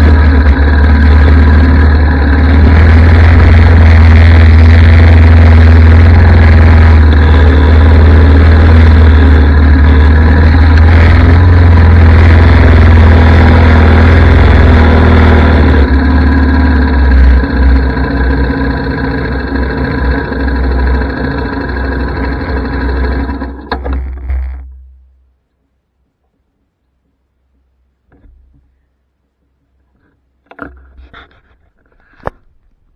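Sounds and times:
atv engine running: 0:00.0 - 0:25.1.

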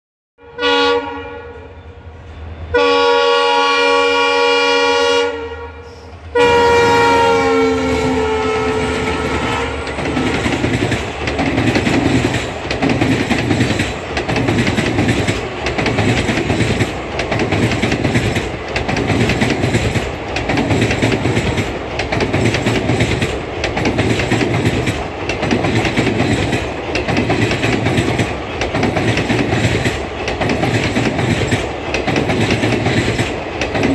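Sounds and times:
train horn blasts: 0:00.4 - 0:10.5
train wheels clickety-clack: 0:06.1 - 0:33.9.

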